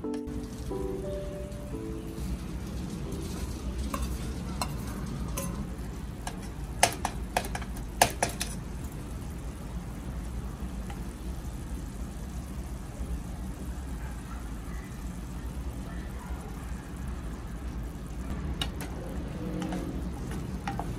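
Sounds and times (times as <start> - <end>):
sauce simmering: 1.5 - 20.9
spatula tapping against pot: 6.2 - 8.6, 19.6 - 20.9.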